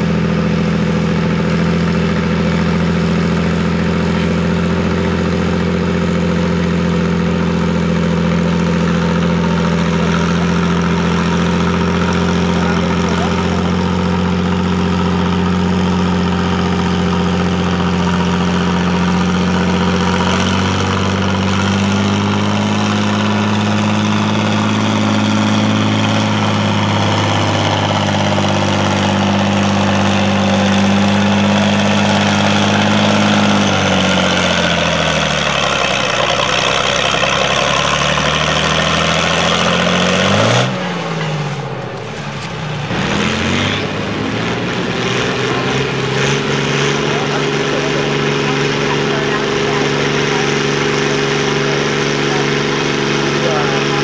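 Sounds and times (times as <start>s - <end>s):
tractor engine revving in blips: 0.0s - 54.0s
tractor engine running under load: 0.0s - 54.0s.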